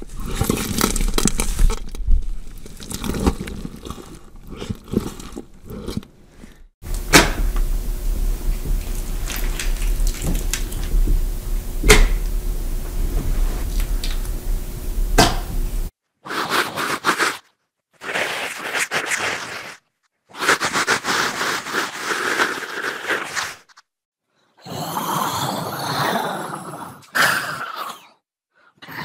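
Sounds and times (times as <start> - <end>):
low hum: 6.8 - 15.9
bursts of rough grainy noise: 6.9 - 15.9.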